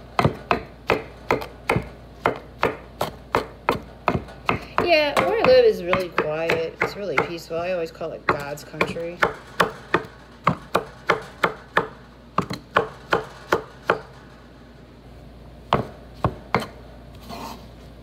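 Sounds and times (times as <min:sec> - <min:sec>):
knife chopping on wooden board: 0:00.2 - 0:07.4, 0:08.3 - 0:14.1, 0:15.7 - 0:16.8.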